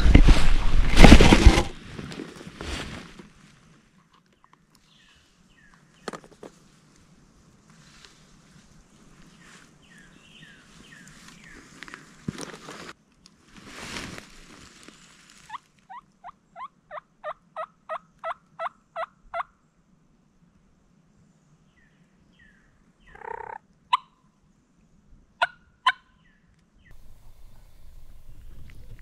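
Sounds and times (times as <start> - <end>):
swish of movement: 0.0 - 1.8
turkey yelps: 25.4 - 26.2.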